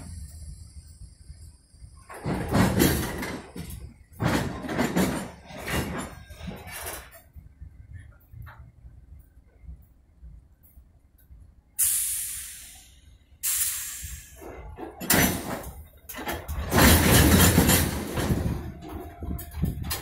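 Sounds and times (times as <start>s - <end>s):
rumbling of rolling train cars: 0.0s - 20.0s
train air brakes hissing: 11.7s - 14.8s.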